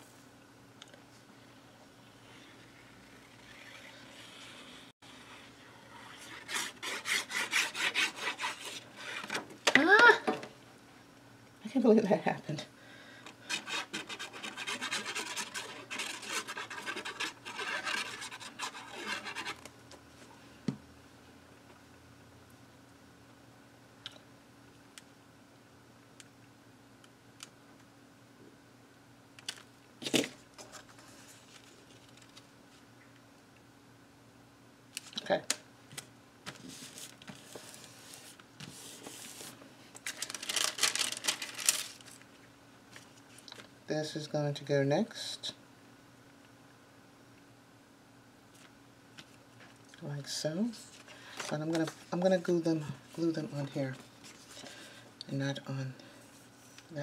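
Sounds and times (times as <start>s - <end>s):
glue nozzle scratching paper: 3.1s - 9.4s, 13.5s - 19.7s
tissue paper crinkling: 36.7s - 42.3s.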